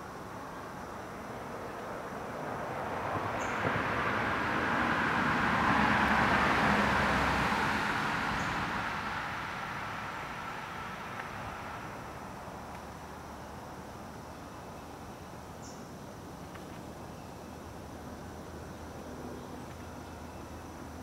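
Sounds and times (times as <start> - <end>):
vehicle passing by: 1.4 - 12.3.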